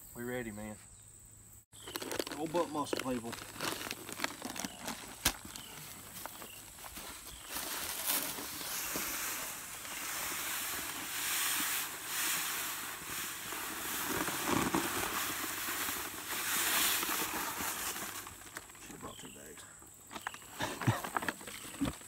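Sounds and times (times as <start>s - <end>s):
grain pouring from sacks: 1.8s - 5.7s, 7.7s - 18.8s.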